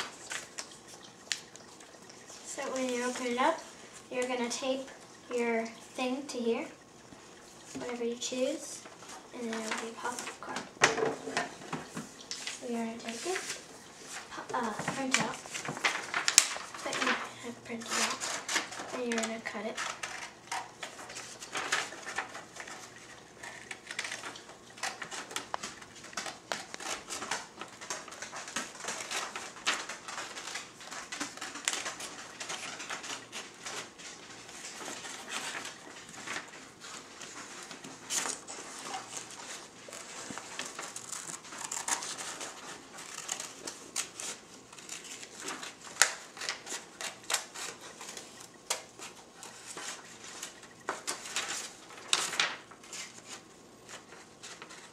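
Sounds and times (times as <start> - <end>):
paper rustling: 7.8 - 54.9
scissors cutting paper: 14.6 - 54.9.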